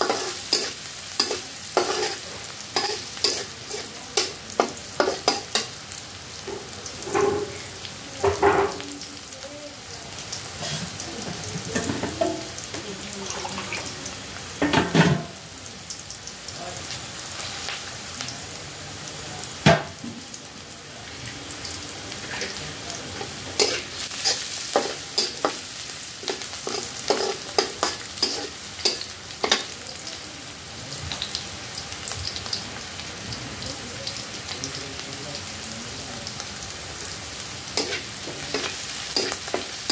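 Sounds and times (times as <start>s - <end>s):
metal spatula scraping a pan: 0.0s - 2.2s, 2.8s - 4.3s, 10.6s - 11.0s, 22.2s - 25.6s, 26.2s - 29.7s, 37.8s - 39.9s
food sizzling in a wok: 0.0s - 39.9s.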